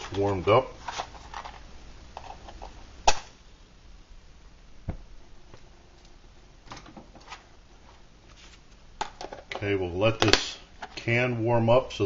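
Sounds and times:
handling knocks and scrapes: 0.0s - 1.6s, 6.8s - 9.7s.

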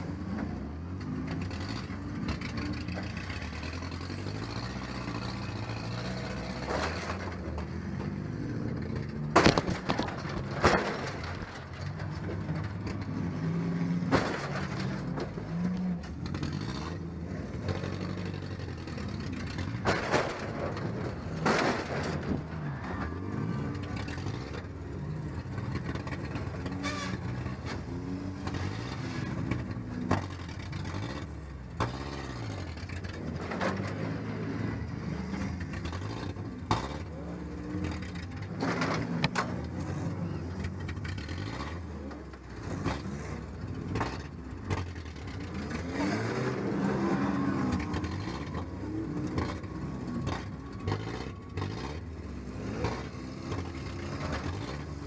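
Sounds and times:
truck engine revving: 0.0s - 55.0s
impact bangs and clatter: 9.3s - 13.0s, 14.0s - 15.5s, 19.5s - 22.6s.

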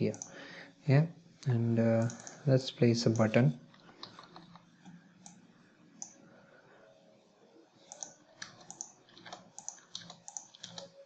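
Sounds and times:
keyboard typing: 0.0s - 0.4s, 2.0s - 2.4s, 3.1s - 6.2s, 7.8s - 11.0s
mouse clicks: 2.0s - 2.4s, 7.8s - 10.9s.

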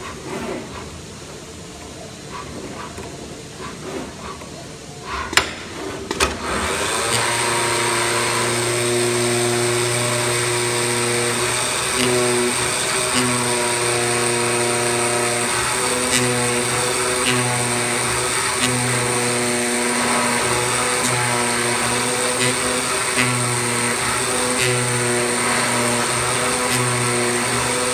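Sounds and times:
cutter motor hum and whine: 6.4s - 27.9s.

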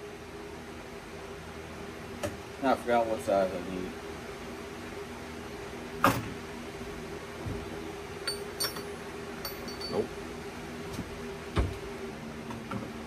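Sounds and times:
steady low hum: 0.0s - 13.0s
metal tools clinking on workbench: 8.2s - 10.1s.

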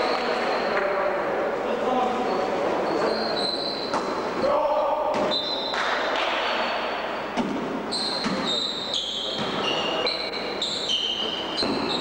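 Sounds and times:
shoes squeaking on gym floor: 2.2s - 4.3s, 5.2s - 5.8s, 6.4s - 12.0s.

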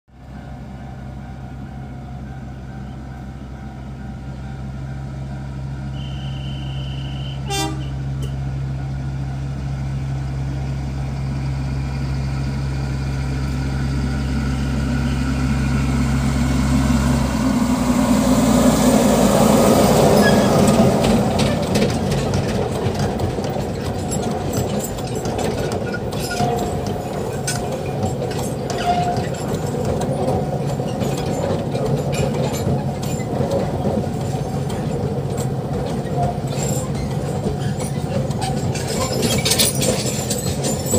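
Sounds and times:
locomotive passing: 0.2s - 40.9s
wagons rumbling over rail joints: 0.2s - 40.9s
short high train toot: 5.8s - 8.4s.

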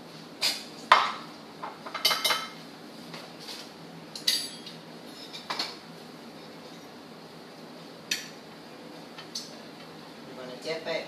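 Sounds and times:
utensil clinking against dishes: 4.2s - 5.8s.

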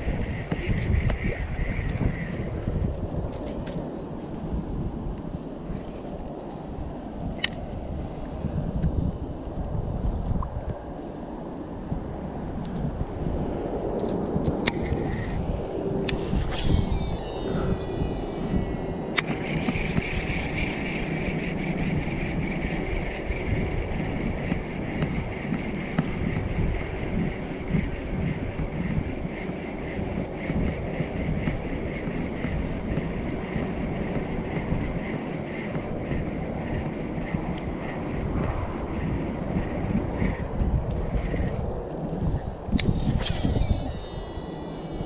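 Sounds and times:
wind buffeting microphone: 0.0s - 45.0s
faint high-pitched hum: 16.1s - 24.4s, 42.8s - 45.0s.

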